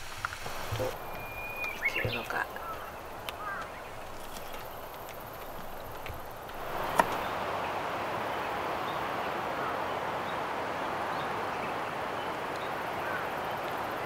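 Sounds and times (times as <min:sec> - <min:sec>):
outdoor background hiss: 0:00.0 - 0:14.0
faint bird chirps: 0:00.4 - 0:07.4.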